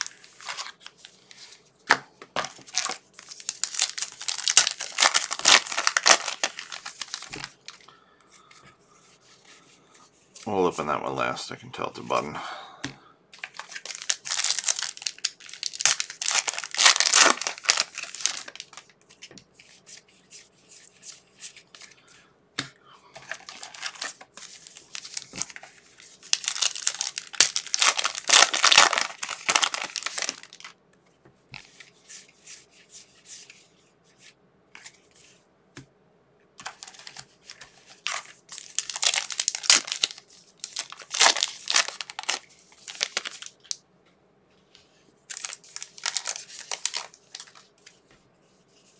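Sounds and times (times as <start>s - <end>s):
card pack wrappers rustling: 0.0s - 7.9s, 13.4s - 19.3s, 23.2s - 30.7s, 36.6s - 43.8s, 45.3s - 47.8s.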